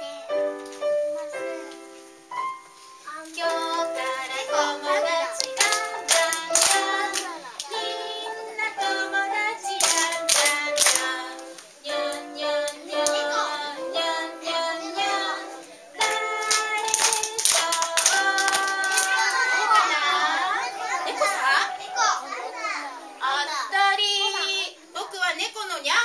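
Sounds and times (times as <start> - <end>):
woman and children singing: 3.2 - 21.8, 23.2 - 25.4
hand claps: 5.4 - 7.9, 9.7 - 13.2, 16.0 - 20.0.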